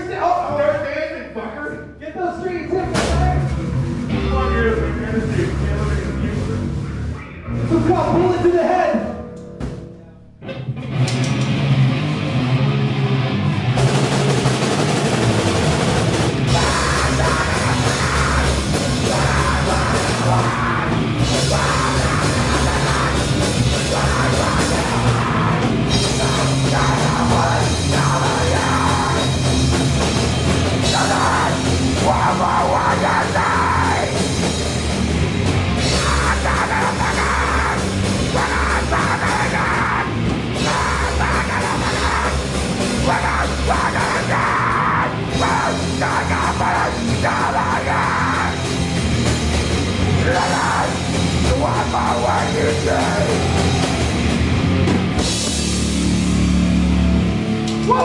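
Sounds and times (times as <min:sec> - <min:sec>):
live heavy rock band: 0:01.7 - 0:58.0
yelled vocals: 0:13.7 - 0:58.0.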